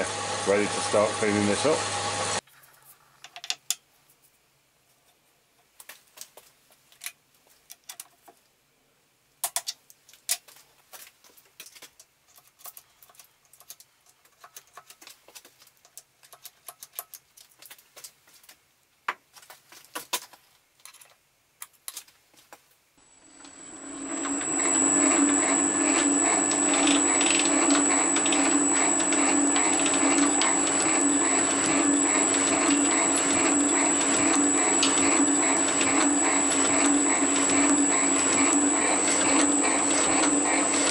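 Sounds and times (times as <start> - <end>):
metal parts and tools clicking: 11.6 - 17.6.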